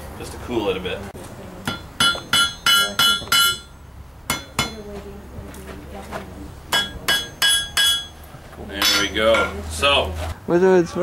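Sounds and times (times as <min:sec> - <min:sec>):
hammer striking iron on anvil: 0:01.6 - 0:04.8, 0:06.7 - 0:08.2, 0:08.8 - 0:09.6.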